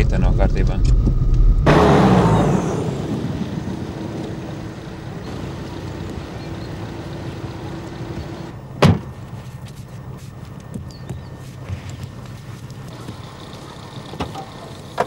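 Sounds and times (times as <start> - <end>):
car engine humming: 0.0 - 15.0
car door slamming: 8.8 - 9.2.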